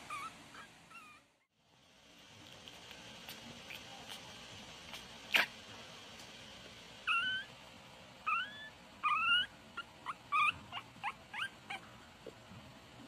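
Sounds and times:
puppy high squeaks: 0.0 - 1.2, 7.1 - 7.5, 8.3 - 11.8
puppy whining: 0.0 - 1.5, 7.0 - 7.6, 8.2 - 12.4.

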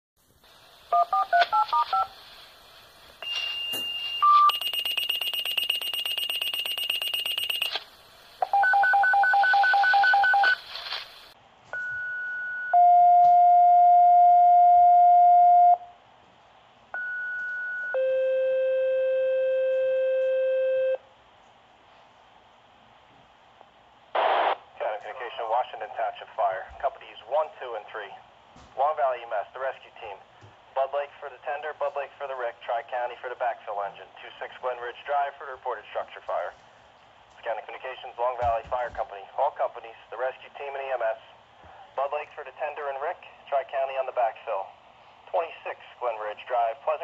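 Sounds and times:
beeps: 3.2 - 7.8
touch-tone digits: 3.2 - 7.8
two-tone pager activation tones: 3.2 - 7.8, 11.8 - 15.8, 17.0 - 21.0.

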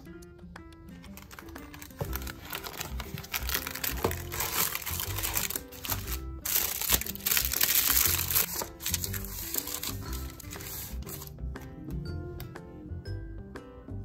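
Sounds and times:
light background music: 0.0 - 14.0
plastic wrap and cardboard crinkling: 1.1 - 11.3.

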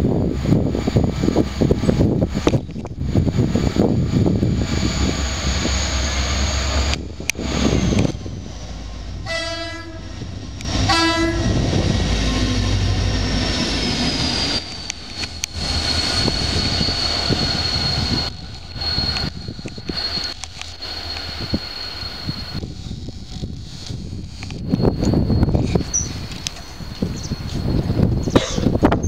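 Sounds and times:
diesel locomotive engine rumbling: 0.0 - 29.0
locomotive horn blasts: 9.2 - 11.6.

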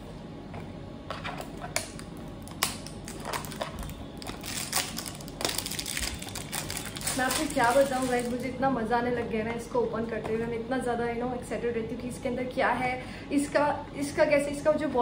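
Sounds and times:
paperboard carton crackling: 2.5 - 8.4.

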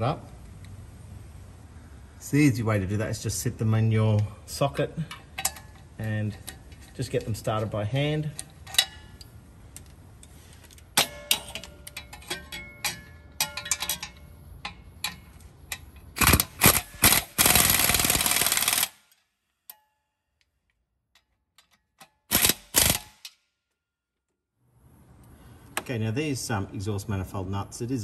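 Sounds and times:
metal tools clinking: 5.0 - 16.1
ratchet clicking rapidly: 16.2 - 19.0.

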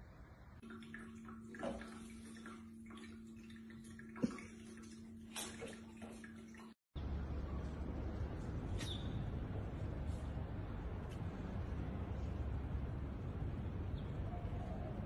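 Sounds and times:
water trickling: 0.6 - 6.8
pump hum: 0.6 - 8.7.

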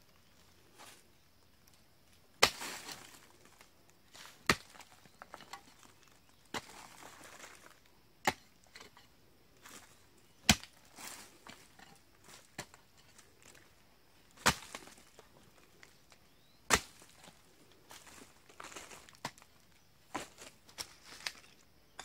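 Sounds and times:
hoe chopping into earth: 2.4 - 3.2, 4.2 - 5.9, 6.5 - 7.5, 8.2 - 9.0, 10.4 - 12.8, 14.3 - 15.0, 16.7 - 17.3.

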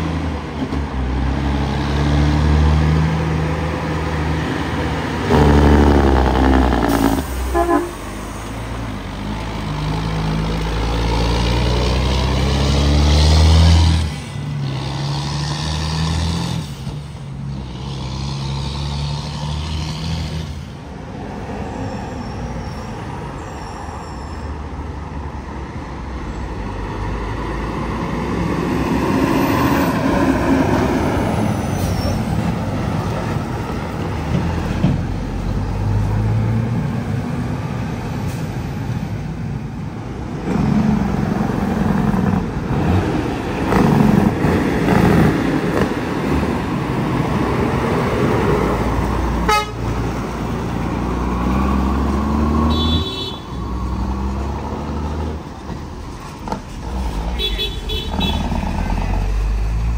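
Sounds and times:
dump truck engine working hard: 0.0 - 21.2, 26.0 - 59.9
tractor-trailer engine: 0.0 - 21.4, 25.0 - 59.9.

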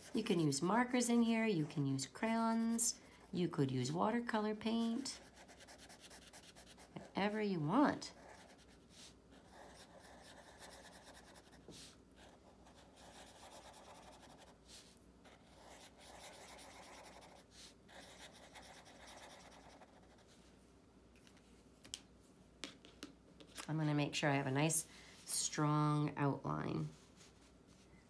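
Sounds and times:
marker scratching on paper: 4.7 - 7.4, 8.1 - 20.3.

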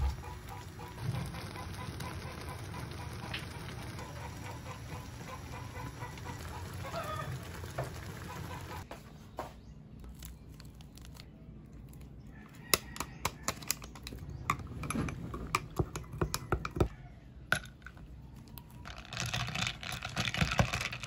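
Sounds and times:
stew bubbling on gas burner: 0.0 - 8.8
chickens clucking: 0.0 - 8.9.

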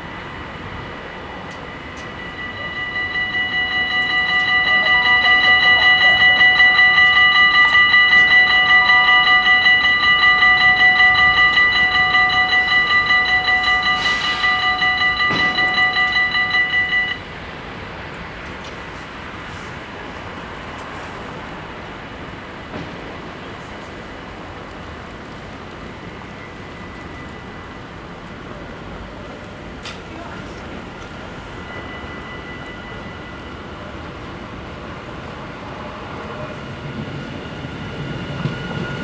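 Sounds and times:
level crossing bells ringing: 0.6 - 17.3, 30.0 - 36.0.

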